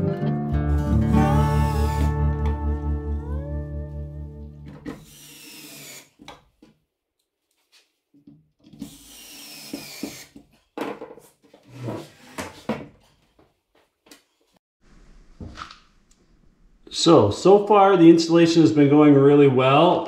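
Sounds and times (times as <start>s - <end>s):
cordless drill whining: 1.2s - 2.2s, 4.8s - 6.3s, 8.7s - 10.4s.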